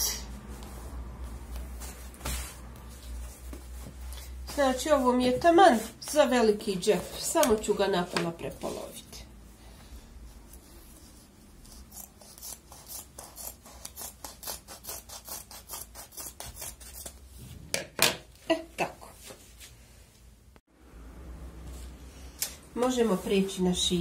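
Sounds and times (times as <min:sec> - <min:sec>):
scissors snipping fabric: 0:11.6 - 0:17.2.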